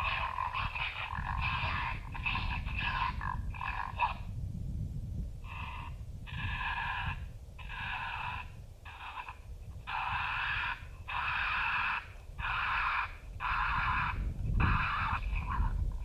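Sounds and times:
raspy raccoon squalls: 0.0s - 4.3s, 5.5s - 16.0s.

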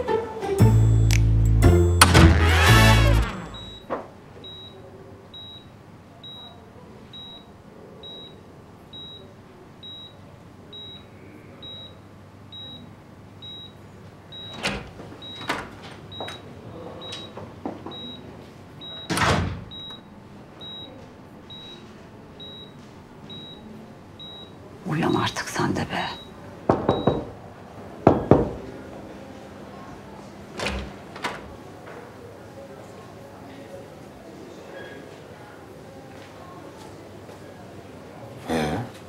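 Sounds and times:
patient monitor beeping: 0.7s - 27.3s
knocks and thuds: 26.7s - 27.3s.

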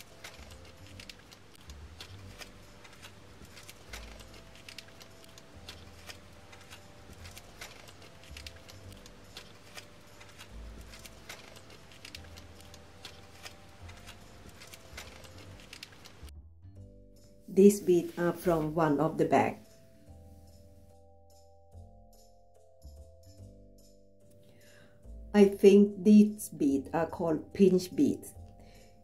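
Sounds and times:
beads rattling in bags: 0.0s - 16.3s
plastic bags crinkling: 0.0s - 16.3s.

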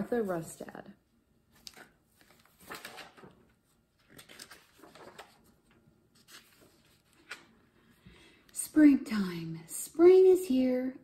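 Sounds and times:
book pages turning: 1.5s - 7.8s.

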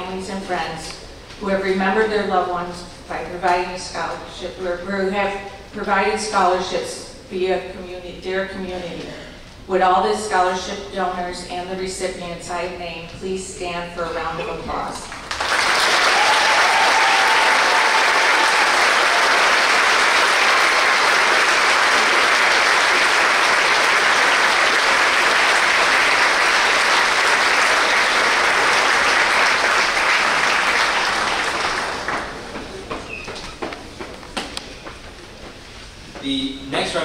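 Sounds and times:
audience clapping: 15.1s - 33.1s.

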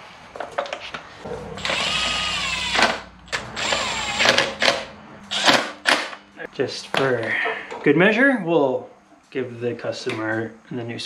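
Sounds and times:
cordless drill whining: 1.6s - 5.7s.

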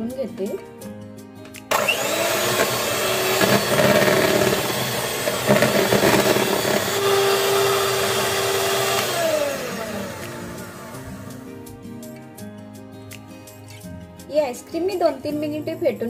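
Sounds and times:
beaters churning ice cream in bowl: 1.7s - 10.3s
electric hand mixer running: 1.7s - 11.4s.

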